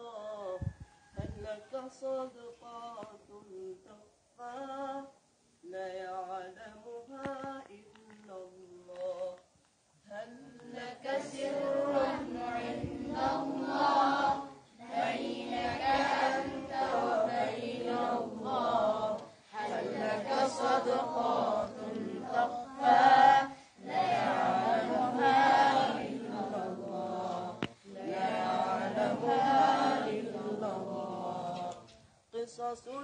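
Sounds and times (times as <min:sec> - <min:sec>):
boys singing unaccompanied: 0:00.0 - 0:09.4, 0:10.0 - 0:33.0.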